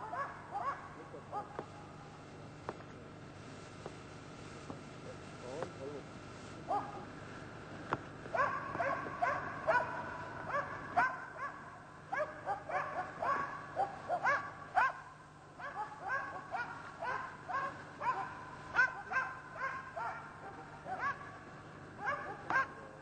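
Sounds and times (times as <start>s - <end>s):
dog barking rapidly: 0.0s - 1.6s, 6.7s - 7.0s, 8.4s - 21.4s, 22.0s - 22.8s.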